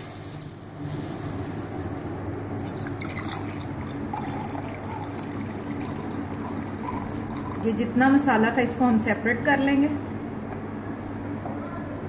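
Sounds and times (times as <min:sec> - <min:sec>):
steady low hum: 0:00.5 - 0:12.0
liquid trickling into steel tumbler: 0:02.6 - 0:08.3.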